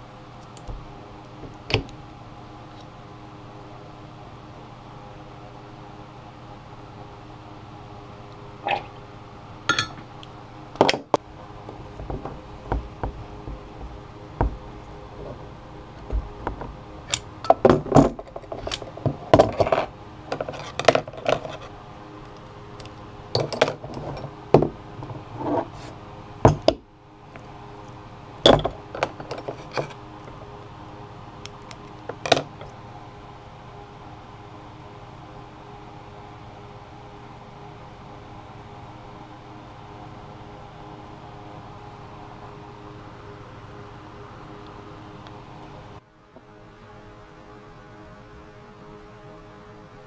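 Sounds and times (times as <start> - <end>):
steady hum: 0.0 - 50.0.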